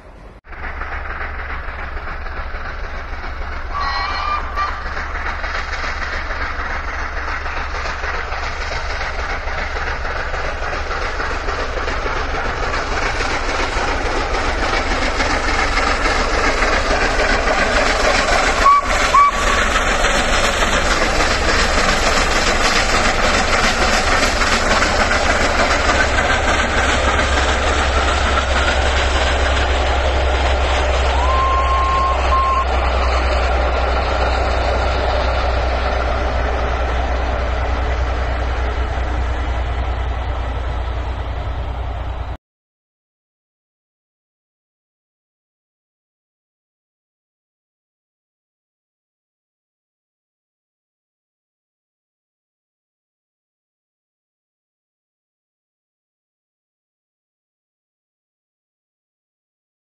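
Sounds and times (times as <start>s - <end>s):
steam locomotive passing: 0.0s - 42.4s.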